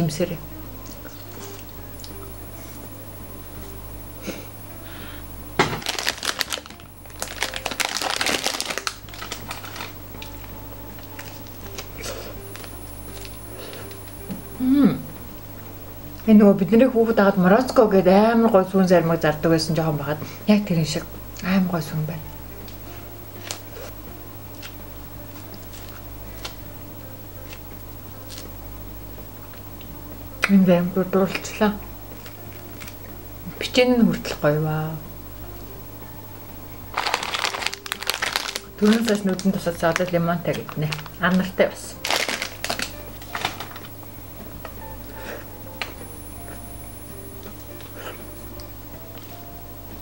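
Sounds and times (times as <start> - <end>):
steady low hum: 0.0 - 50.0
plastic wrapper crinkling: 5.6 - 13.3, 36.9 - 43.9.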